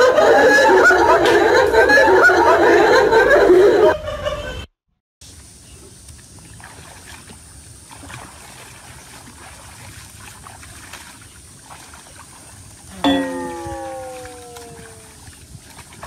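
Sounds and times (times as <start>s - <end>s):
pond water sloshing and lapping: 5.3s - 16.0s
small water splashes: 5.8s - 16.0s.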